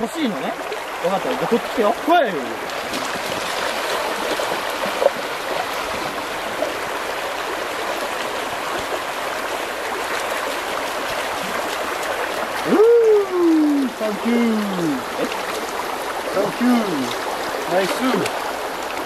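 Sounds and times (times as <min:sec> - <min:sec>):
water rushing over stones: 0:00.0 - 0:19.0
dog splashing through water: 0:02.7 - 0:06.8.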